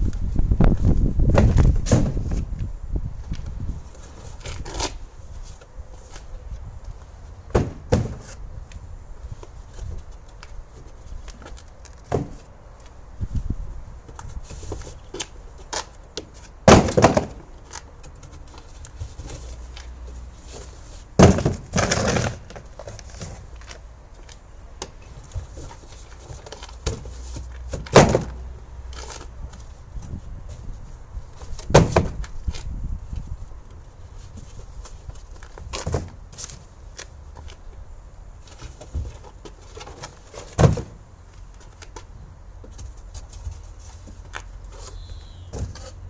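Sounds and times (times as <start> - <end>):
cardboard boxes knocking and scraping: 0.8 - 2.5, 7.5 - 8.4, 10.8 - 12.5, 14.1 - 23.8, 24.8 - 32.7, 34.2 - 36.7, 38.4 - 46.0.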